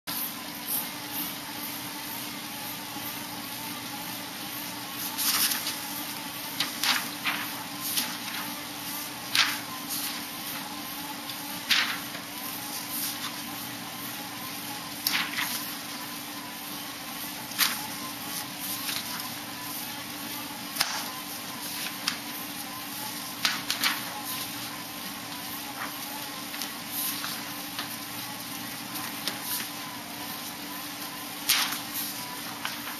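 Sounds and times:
bicycle trainer whirring: 0:00.1 - 0:32.9
steady background hum: 0:00.1 - 0:32.9
paper sign rustling: 0:05.0 - 0:13.7, 0:14.9 - 0:16.1, 0:20.7 - 0:24.8, 0:25.4 - 0:32.9.

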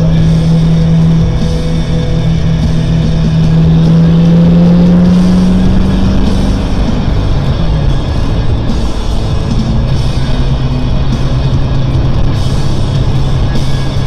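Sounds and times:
car engine running: 0:00.0 - 0:14.0
music: 0:00.0 - 0:14.0.

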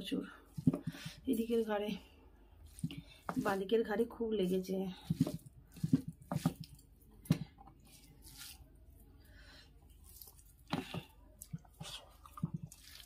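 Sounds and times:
hand squishing rice on plate: 0:02.6 - 0:03.7, 0:04.4 - 0:09.1, 0:09.9 - 0:13.0
chewing: 0:09.9 - 0:13.0.

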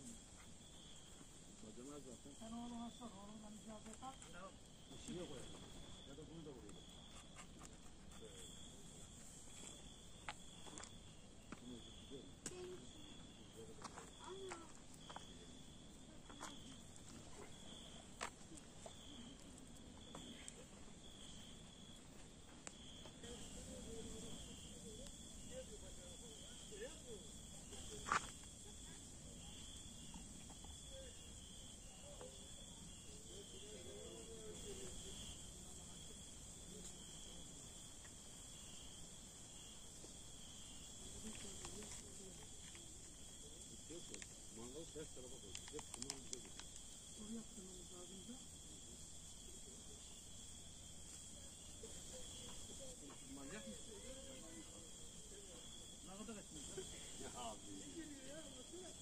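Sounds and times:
insects chirring: 0:00.0 - 0:59.0
campfire clicks and pops: 0:16.2 - 0:22.0, 0:22.6 - 0:23.5, 0:45.4 - 0:47.0.

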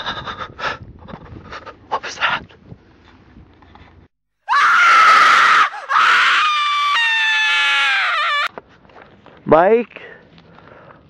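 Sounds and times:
person screaming: 0:04.5 - 0:08.5.

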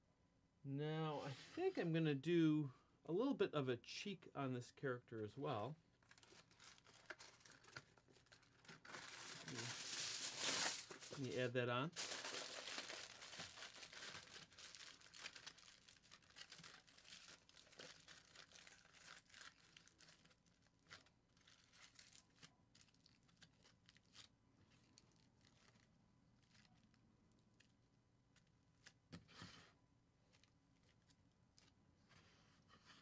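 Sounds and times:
aluminium foil crinkling: 0:06.0 - 0:29.0, 0:30.3 - 0:31.8.

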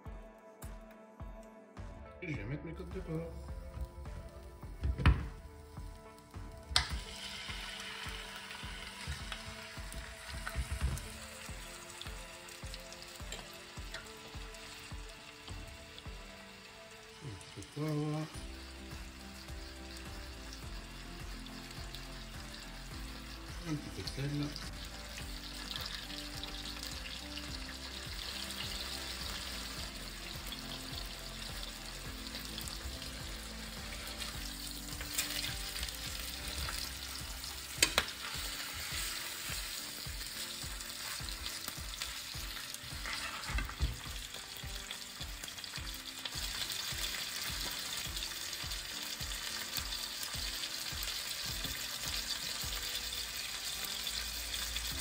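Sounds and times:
meat sizzling in frying pan: 0:03.0 - 0:55.0
fork clicking against pan: 0:37.8 - 0:38.2.

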